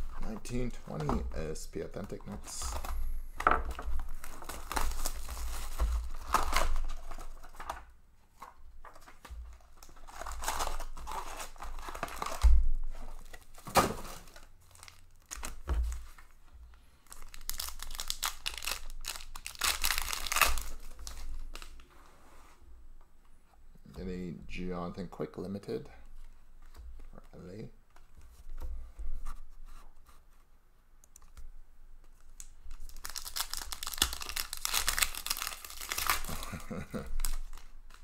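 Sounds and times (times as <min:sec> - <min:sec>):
cardboard and foil tearing: 0:09.8 - 0:12.4, 0:17.1 - 0:21.8, 0:32.8 - 0:38.0.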